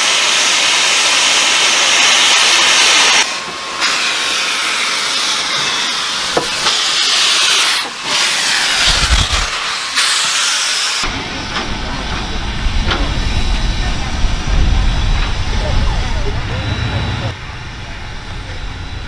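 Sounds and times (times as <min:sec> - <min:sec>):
steam locomotive hissing steam: 0:00.0 - 0:19.0
low rumbling thumps: 0:08.8 - 0:09.7, 0:11.1 - 0:18.3.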